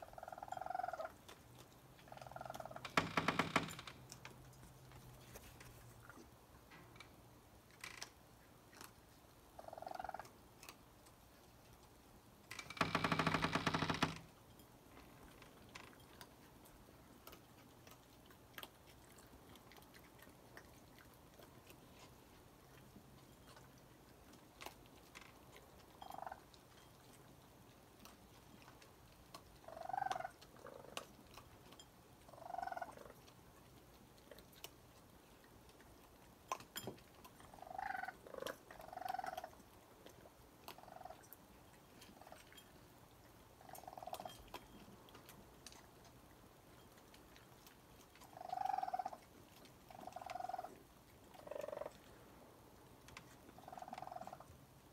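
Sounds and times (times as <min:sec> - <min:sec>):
raccoons chirping: 0:00.0 - 0:01.3, 0:01.9 - 0:03.7, 0:09.6 - 0:10.4, 0:26.0 - 0:26.5, 0:29.6 - 0:31.0, 0:32.3 - 0:33.2, 0:37.4 - 0:39.6, 0:40.7 - 0:41.3, 0:43.6 - 0:44.6, 0:48.2 - 0:52.0, 0:53.4 - 0:54.5.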